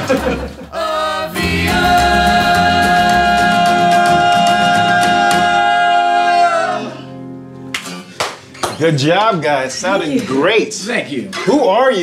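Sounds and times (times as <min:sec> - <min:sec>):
acoustic string band playing: 0:00.0 - 0:05.9
voices singing in harmony: 0:00.6 - 0:07.2.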